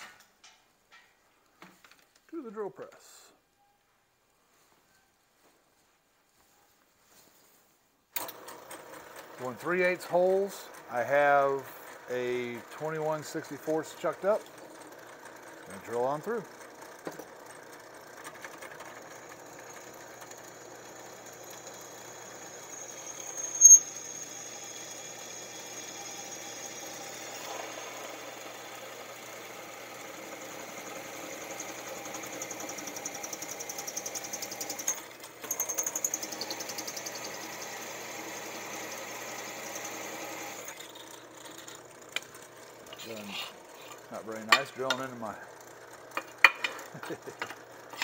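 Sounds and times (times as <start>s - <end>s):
drill press drilling metal: 8.2s - 41.8s
sharp squeak: 23.0s - 24.0s.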